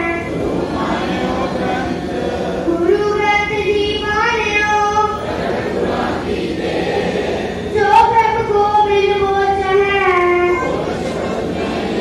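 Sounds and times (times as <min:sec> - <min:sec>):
congregation chanting in unison: 0:00.0 - 0:09.7, 0:10.5 - 0:12.0.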